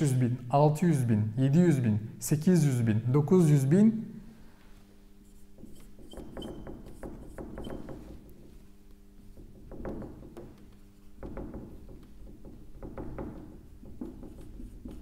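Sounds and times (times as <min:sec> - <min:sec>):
marker squeaks: 0:05.2 - 0:08.0
marker scratching on whiteboard: 0:05.2 - 0:08.2, 0:14.0 - 0:15.0.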